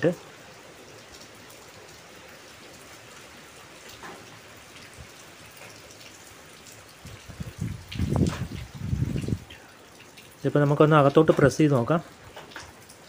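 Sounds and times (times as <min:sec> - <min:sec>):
rain falling: 0:00.0 - 0:13.0.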